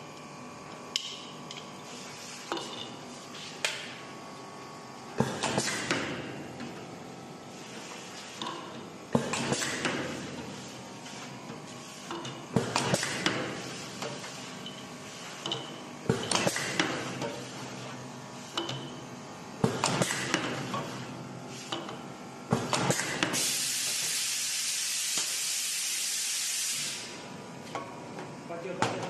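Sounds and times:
hiss of air: 0:23.4 - 0:27.2.

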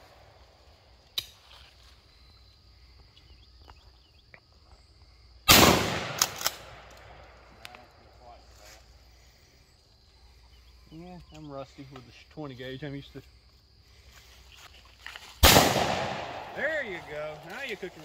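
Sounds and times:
shotgun shot: 0:05.5 - 0:06.9, 0:15.4 - 0:17.2.

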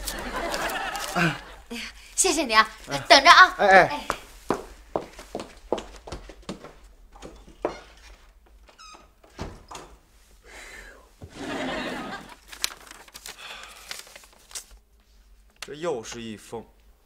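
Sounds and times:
envelope paper tearing: 0:12.4 - 0:14.8.

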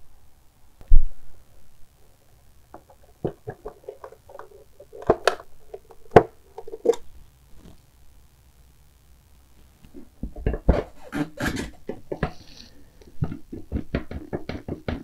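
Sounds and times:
clicks and taps of hand work: 0:13.1 - 0:15.0.

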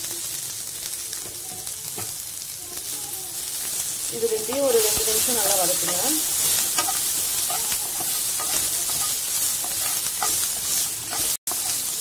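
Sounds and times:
food sizzling in butter: 0:00.0 - 0:12.0
wooden spatula scraping pan: 0:04.4 - 0:11.8.

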